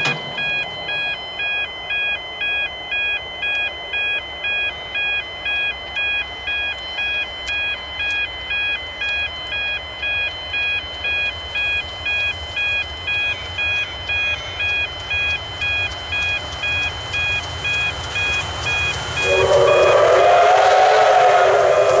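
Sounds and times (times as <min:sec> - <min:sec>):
level crossing warning bell: 0:00.0 - 0:22.0
rumble of approaching train: 0:11.4 - 0:22.0
steam locomotive chime whistle: 0:18.2 - 0:22.0.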